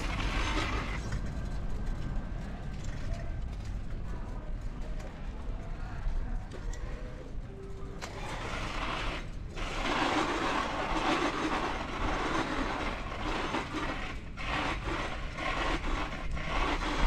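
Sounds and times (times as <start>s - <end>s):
bicycle tyre and drivetrain noise: 0.0s - 17.0s.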